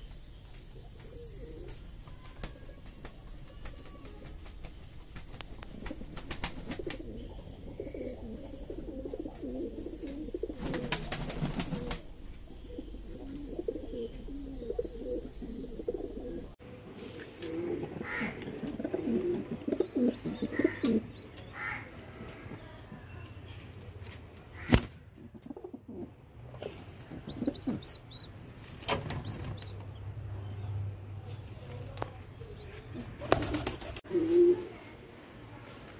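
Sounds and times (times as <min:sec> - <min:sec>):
wings flapping: 0:01.1 - 0:07.2, 0:09.2 - 0:12.1, 0:28.6 - 0:29.8, 0:33.0 - 0:34.0
pigeons cooing: 0:05.4 - 0:21.9, 0:25.3 - 0:28.3.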